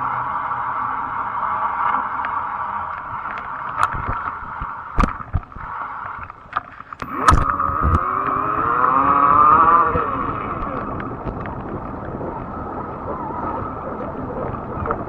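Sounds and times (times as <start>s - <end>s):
bike ride rushing noise: 3.8s - 15.0s
electric motor tone rising: 7.0s - 11.3s.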